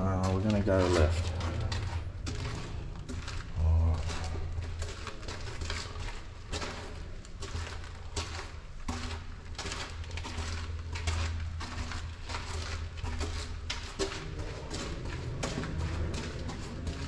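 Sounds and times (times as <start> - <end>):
low rumble: 0.0 - 5.0
footsteps in concrete tunnel: 0.0 - 17.0.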